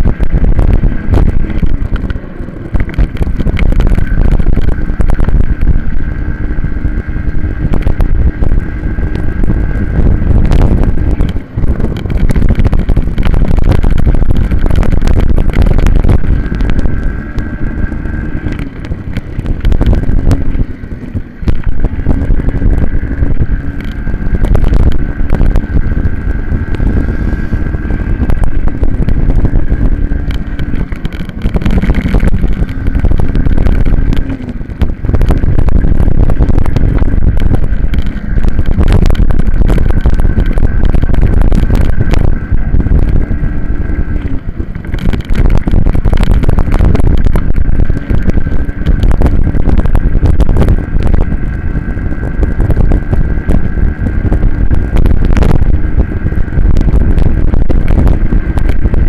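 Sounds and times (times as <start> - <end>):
minibike engine at high revs: 0.0 - 59.0
wind buffeting on microphone: 0.0 - 59.0.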